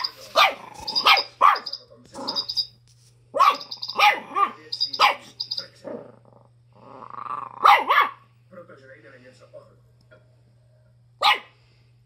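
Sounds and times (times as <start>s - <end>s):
toy chirping rapidly: 3.5s - 5.7s
dog barking sharply: 7.6s - 8.2s, 11.2s - 11.5s.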